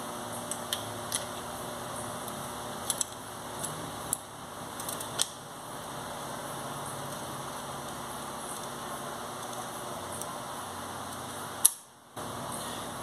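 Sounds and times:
steady background hiss: 0.0 - 13.0
small parts clicking and tapping: 2.2 - 4.2.

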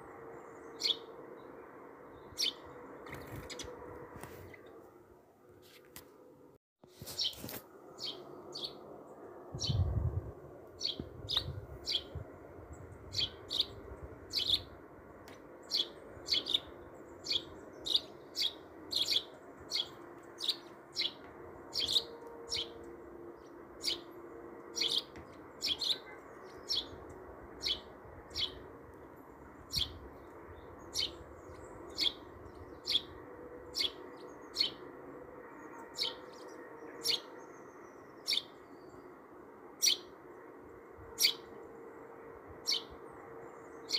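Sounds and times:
bird chirping: 0.4 - 3.8, 7.1 - 8.8, 10.8 - 14.8, 15.6 - 24.1, 24.7 - 28.7, 29.6 - 34.9, 35.6 - 39.1.

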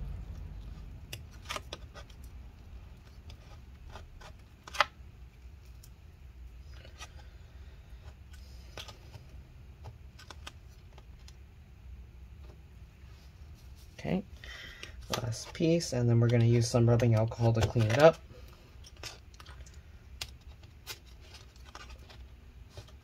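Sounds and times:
small clicks and scraping: 0.3 - 6.0, 8.0 - 11.4, 14.7 - 23.0.

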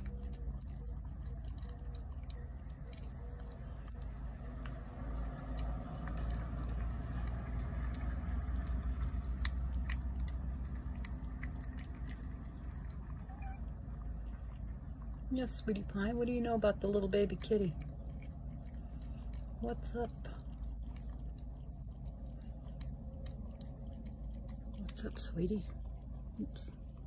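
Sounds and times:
cat chewing and lapping food: 0.0 - 27.0
low steady rumble: 0.0 - 27.0.

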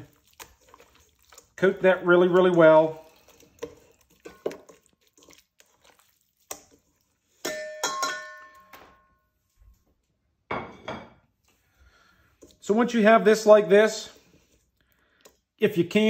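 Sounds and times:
wet rubbing: 0.0 - 7.3
wet squelching of meat in marinade: 0.0 - 7.5
metal bowl ringing: 7.4 - 9.2.

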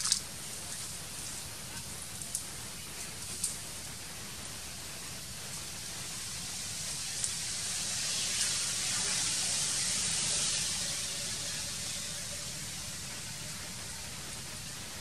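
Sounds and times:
forest background hiss: 0.0 - 15.0
faint ticks: 2.2 - 2.5.

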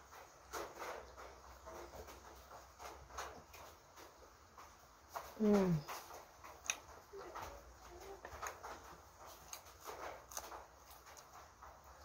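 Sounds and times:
soft chewing: 0.0 - 12.0.

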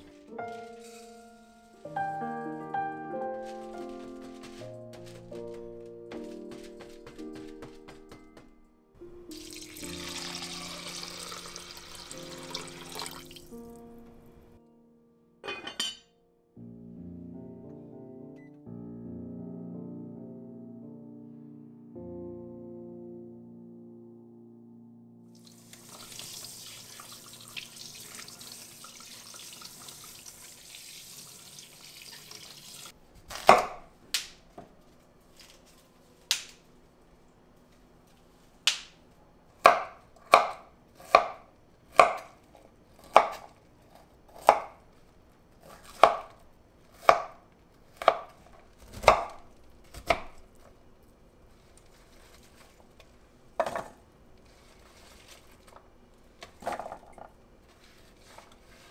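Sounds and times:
tap water running: 9.3 - 13.8, 25.4 - 32.9
knife chopping on wooden board: 33.3 - 33.8, 39.6 - 41.4, 42.0 - 42.3, 43.0 - 43.5, 44.4 - 44.7, 45.6 - 46.4, 47.0 - 47.4, 48.0 - 50.4.

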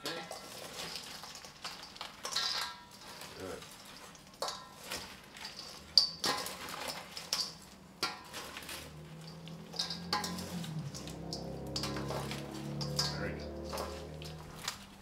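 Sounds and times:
low background music: 8.7 - 15.0
spoon clinking against metal bowl: 9.2 - 14.5.

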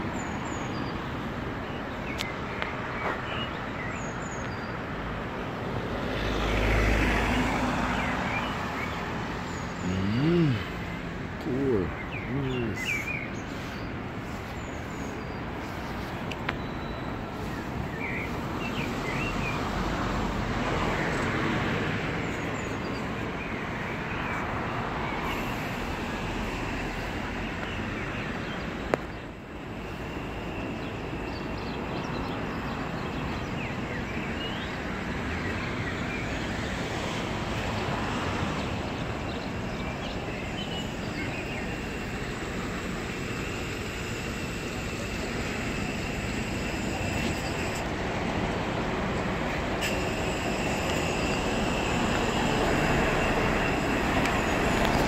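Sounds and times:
road traffic noise: 0.0 - 55.0
bird chirps: 7.6 - 19.6.

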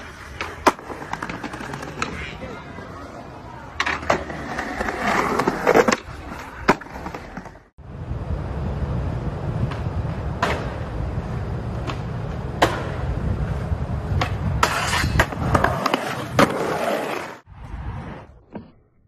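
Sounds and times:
skateboard wheels rolling: 0.0 - 18.9
skateboard clacking on ground: 0.2 - 7.6.

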